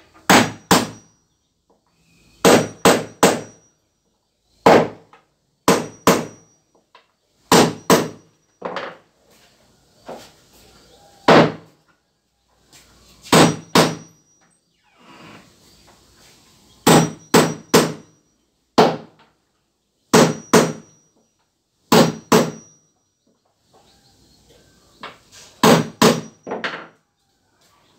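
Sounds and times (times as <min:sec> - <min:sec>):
hammer striking nails into wood: 0:00.3 - 0:01.1, 0:02.4 - 0:03.6, 0:04.6 - 0:06.5, 0:07.5 - 0:08.3, 0:11.3 - 0:11.7, 0:13.3 - 0:14.2, 0:16.8 - 0:18.0, 0:18.8 - 0:19.2, 0:20.1 - 0:21.0, 0:21.9 - 0:22.8, 0:25.6 - 0:27.0.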